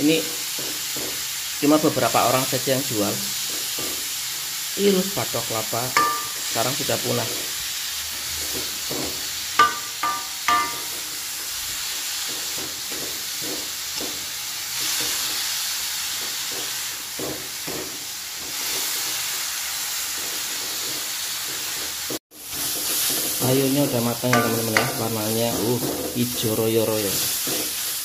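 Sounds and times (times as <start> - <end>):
food sizzling in a wok: 0.0 - 28.0
short ringing knocks: 6.0 - 6.6, 9.6 - 11.0
ladle stirring and scraping wok: 22.4 - 26.3, 27.2 - 28.0.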